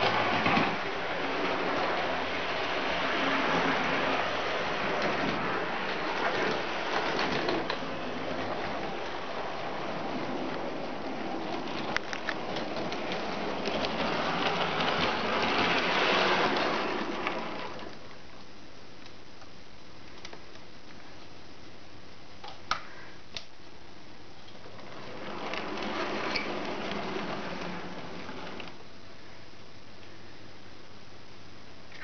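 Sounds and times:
model train rumbling on track: 0.0 - 17.9
wheels clicking over rails: 0.0 - 18.0, 24.5 - 28.8.

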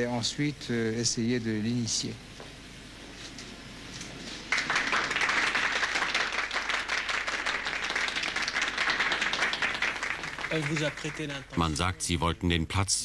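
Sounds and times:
crowd applauding: 4.5 - 11.8.

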